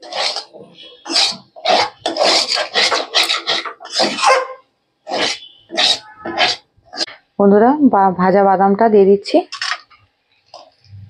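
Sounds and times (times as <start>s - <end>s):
metal spatula scraping pan: 0.0s - 4.4s, 5.1s - 7.2s.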